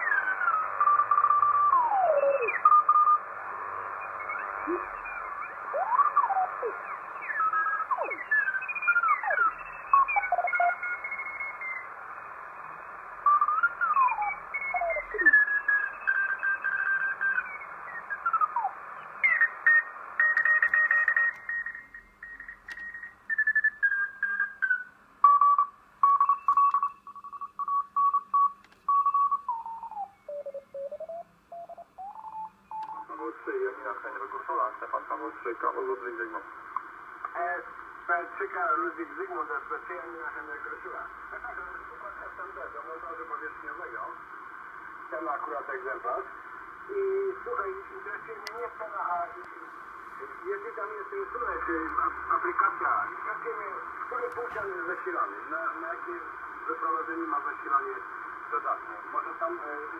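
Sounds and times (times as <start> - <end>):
radio band hiss: 0.0 - 23.3, 29.5 - 59.9.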